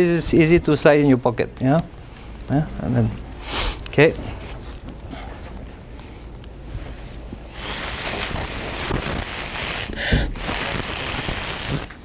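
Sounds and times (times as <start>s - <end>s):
spray gun hissing: 7.5s - 12.0s.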